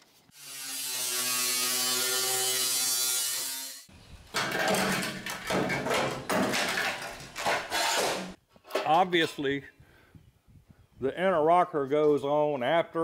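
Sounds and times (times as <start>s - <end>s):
angle grinder cutting metal: 0.3s - 3.9s
sheet metal clanking and rattling: 4.3s - 8.4s.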